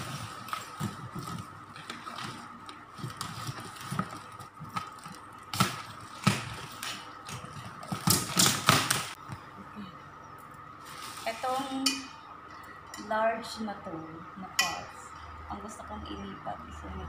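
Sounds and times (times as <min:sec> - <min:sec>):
plastic packaging crinkling: 0:00.0 - 0:09.2, 0:10.8 - 0:11.8.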